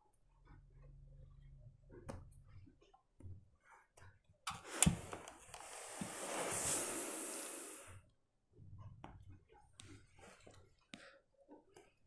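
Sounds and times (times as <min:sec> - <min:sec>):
steam iron clicks: 0:04.5 - 0:05.7
steam iron hissing: 0:04.6 - 0:07.9.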